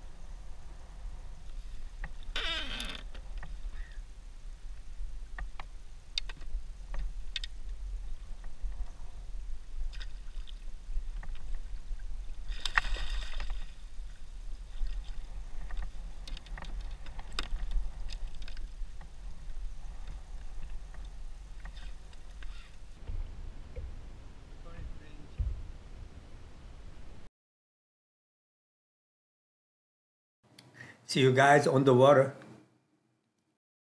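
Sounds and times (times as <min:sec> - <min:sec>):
wind rumble on microphone: 0:00.0 - 0:27.3
fishing gear clicks and knocks: 0:14.7 - 0:22.9.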